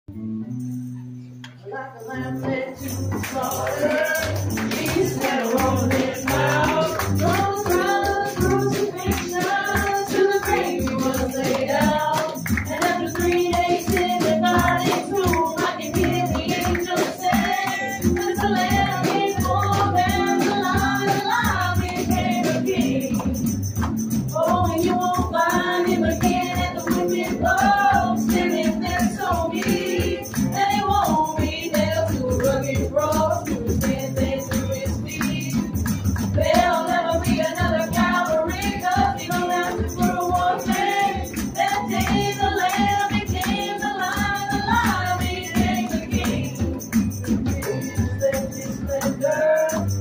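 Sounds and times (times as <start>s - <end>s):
person singing: 1.6s - 23.4s, 47.5s - 50.0s
steady percussion: 2.5s - 50.0s.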